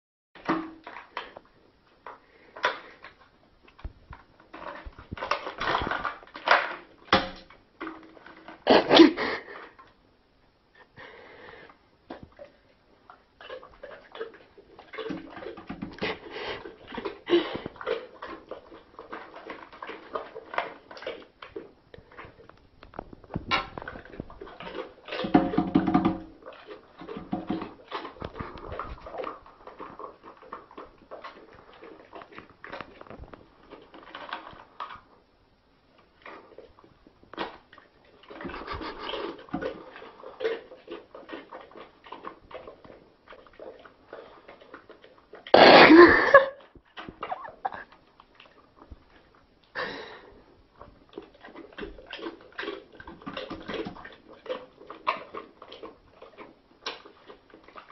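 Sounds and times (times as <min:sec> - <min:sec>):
dog chewing and licking: 0:00.4 - 0:10.1, 0:11.0 - 0:57.9
dog snuffling breaths: 0:16.0 - 0:18.0.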